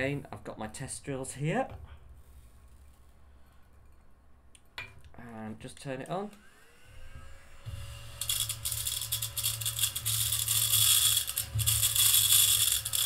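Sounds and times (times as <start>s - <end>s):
handheld vacuum whining: 6.2s - 13.0s
small beads rattling in tray: 8.2s - 13.0s.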